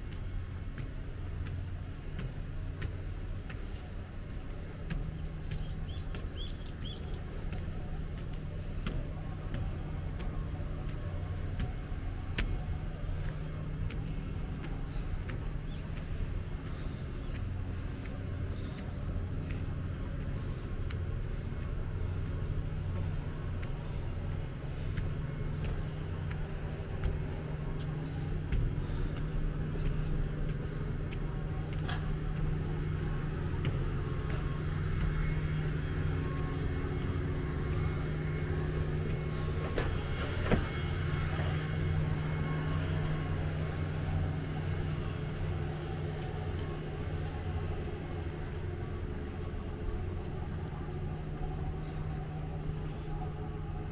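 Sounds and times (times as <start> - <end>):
vehicle engine humming: 0.0 - 53.9.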